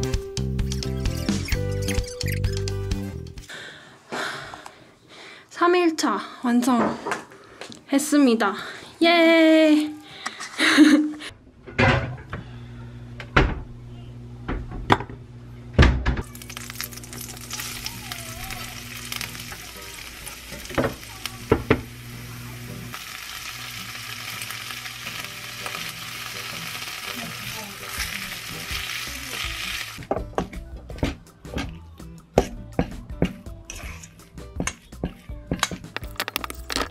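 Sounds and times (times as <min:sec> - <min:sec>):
vegetables sizzling in a frying pan: 0:16.2 - 0:30.0
knocks on a pan: 0:20.7 - 0:21.9.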